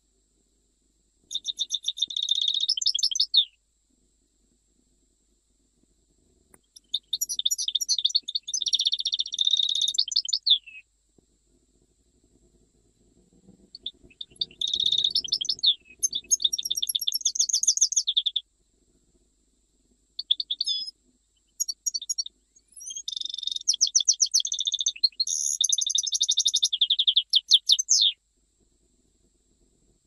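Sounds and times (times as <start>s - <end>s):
goldfinch singing trills: 1.3s - 3.6s, 6.6s - 10.8s, 13.7s - 18.4s, 20.2s - 28.2s.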